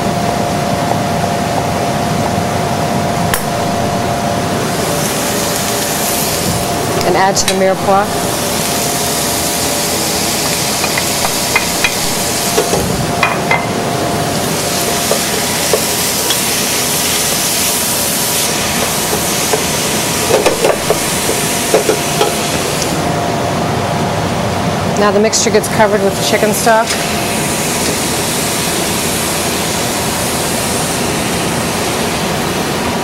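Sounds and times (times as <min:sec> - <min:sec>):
vegetables sizzling in a saucepan: 0:04.6 - 0:12.9, 0:14.1 - 0:23.0.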